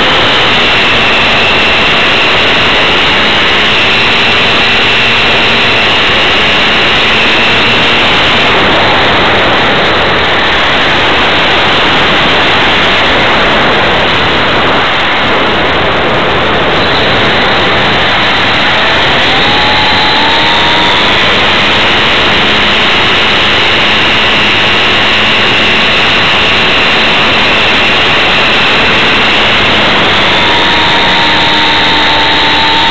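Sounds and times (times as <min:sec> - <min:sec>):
faint motor whine: 0:00.0 - 0:32.9
wind rushing over camera: 0:00.0 - 0:32.9.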